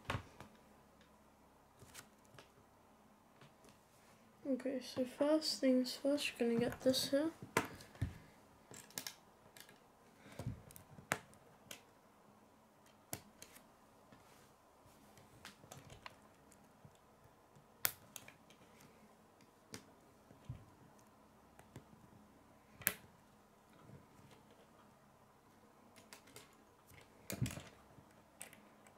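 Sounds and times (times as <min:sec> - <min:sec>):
plastic pieces clicking together: 0:25.9 - 0:28.9.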